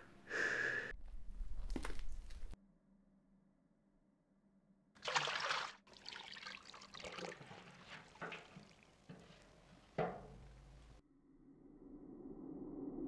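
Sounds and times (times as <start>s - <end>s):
bathwater splash: 5.0s - 11.0s
water sloshing and trickling: 5.0s - 11.0s.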